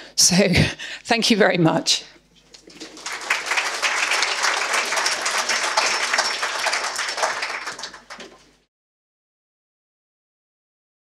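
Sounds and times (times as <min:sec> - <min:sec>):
audience applauding: 0:02.6 - 0:08.6.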